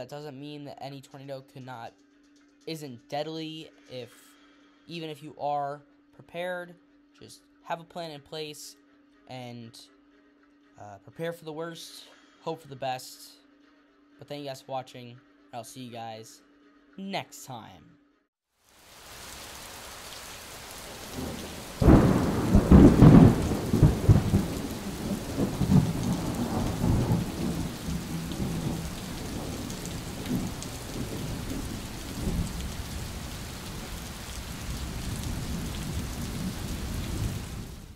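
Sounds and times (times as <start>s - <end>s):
steady rain: 18.6s - 37.9s
thunder rumbling: 20.4s - 37.9s.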